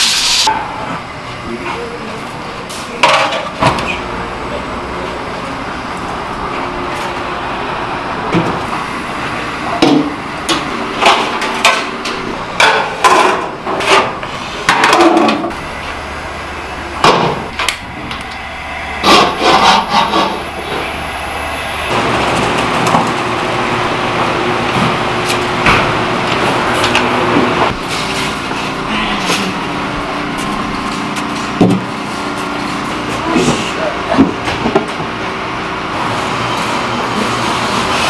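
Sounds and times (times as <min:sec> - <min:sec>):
kitchen hum: 0:00.0 - 0:38.0.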